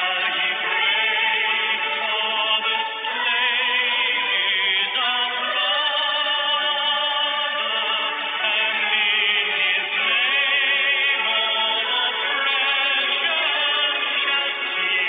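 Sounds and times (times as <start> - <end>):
instrumental accompaniment: 0.0 - 15.0
voice singing with vibrato: 0.0 - 15.0.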